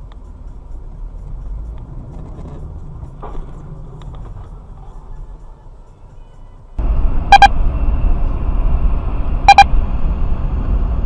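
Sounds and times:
road and engine rumble in car: 0:00.0 - 0:11.0
double electronic beep: 0:07.3 - 0:07.6, 0:09.4 - 0:09.7.

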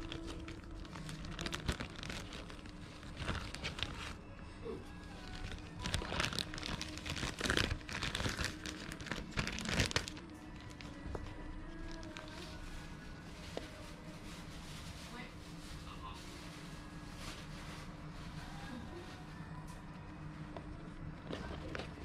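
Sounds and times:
plastic bag crinkling: 0:00.0 - 0:04.2, 0:05.0 - 0:12.7.

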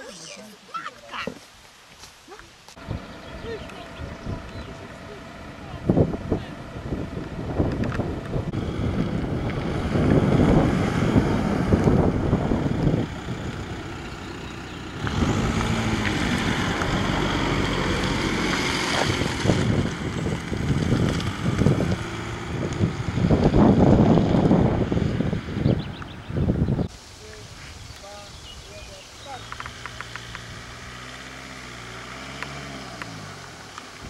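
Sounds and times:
wind buffeting microphone: 0:05.6 - 0:30.9.

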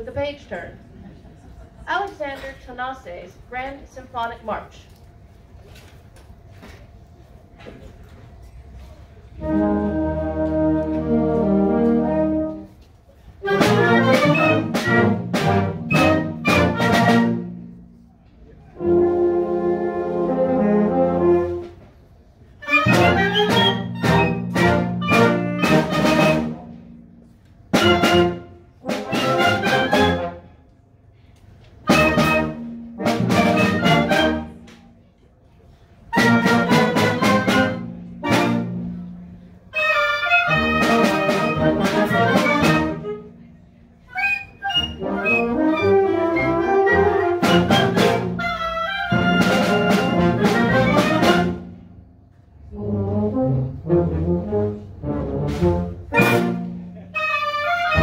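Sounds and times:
wind band playing a march: 0:09.3 - 0:18.0, 0:18.7 - 0:30.6, 0:31.8 - 0:34.7, 0:36.0 - 0:52.0, 0:52.6 - 0:58.0.

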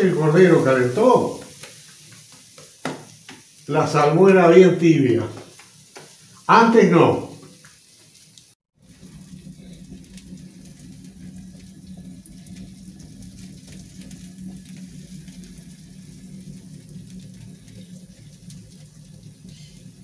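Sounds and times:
meat sizzling on a grill: 0:00.0 - 0:20.0
low hum: 0:08.8 - 0:20.0.

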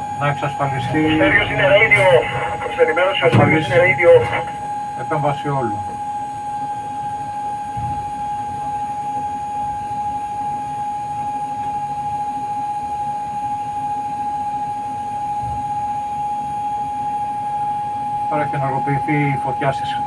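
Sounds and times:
gas flames rumbling: 0:00.0 - 0:06.0
continuous high tone: 0:00.0 - 0:11.2.

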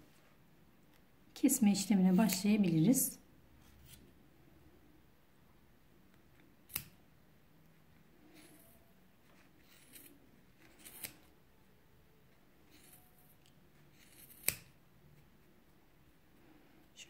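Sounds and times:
scissors snipping cord: 0:06.1 - 0:07.0, 0:12.7 - 0:14.8.

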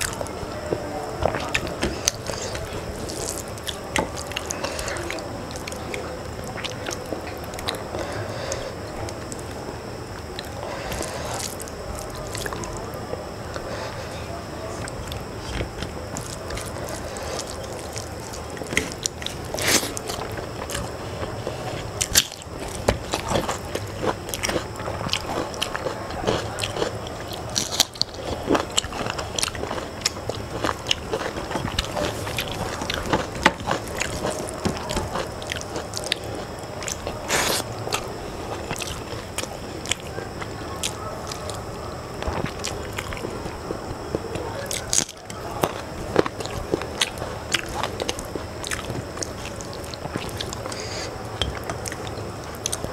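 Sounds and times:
chewing: 0:00.0 - 0:52.9.

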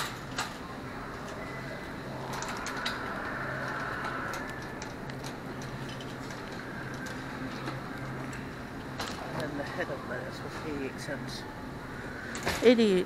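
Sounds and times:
clicks and rattles of carts: 0:00.0 - 0:00.6
low hum: 0:00.0 - 0:12.6
general hubbub: 0:00.0 - 0:13.0.

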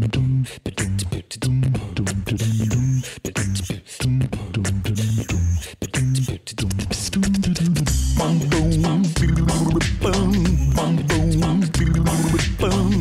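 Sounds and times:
beatbox-style beat: 0:00.0 - 0:13.0
bouncy bass line: 0:00.0 - 0:13.0
upbeat intro music: 0:07.2 - 0:13.0.

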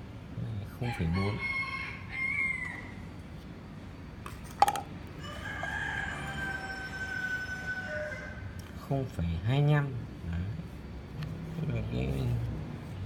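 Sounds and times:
rooster crowing: 0:00.8 - 0:03.1, 0:05.2 - 0:08.6.

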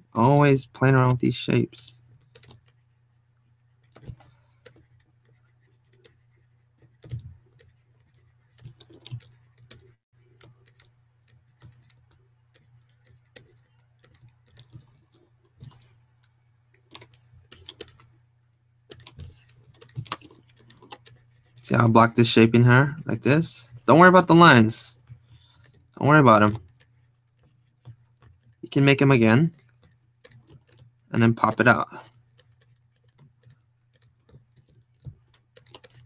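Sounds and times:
keyboard keys clicking: 0:06.9 - 0:18.1, 0:18.9 - 0:21.6, 0:32.4 - 0:36.0.

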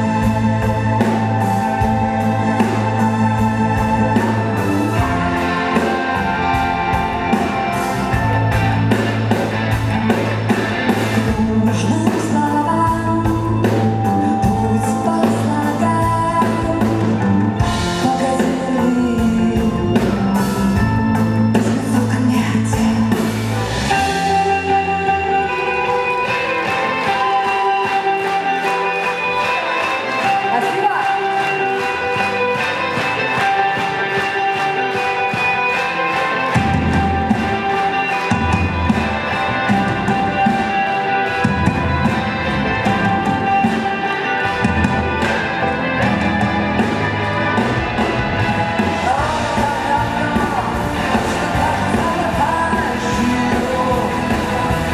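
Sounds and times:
drum kit beat: 0:00.0 - 0:54.9
electric guitar: 0:00.0 - 0:54.9
woman singing: 0:11.2 - 0:20.2, 0:21.6 - 0:23.4, 0:48.9 - 0:54.9.

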